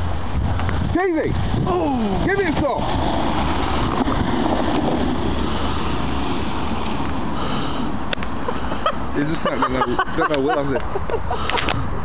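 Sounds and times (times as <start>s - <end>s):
car driving over snow: 0.0s - 8.5s.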